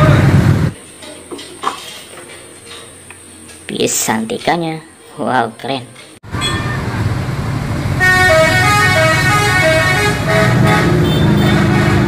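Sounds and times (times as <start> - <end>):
bus engine running: 0.0 - 0.8, 6.3 - 12.0
musical bus horn tune: 8.0 - 12.0.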